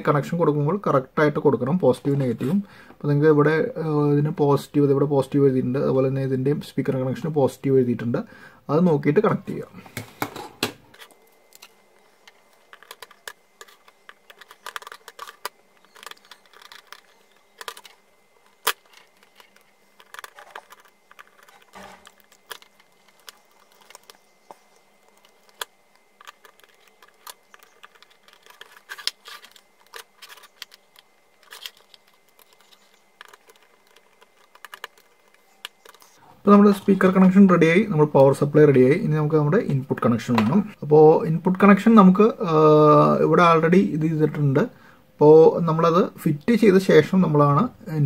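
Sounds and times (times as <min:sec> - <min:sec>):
wires rustling: 0:09.4 - 0:40.8
screwdriver clicking and scraping: 0:12.3 - 0:36.2.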